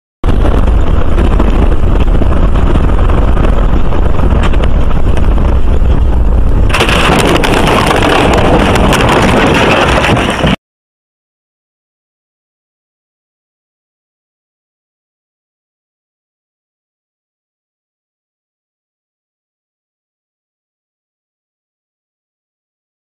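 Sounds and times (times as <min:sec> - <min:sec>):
vehicle road and wind noise: 0:00.2 - 0:10.6.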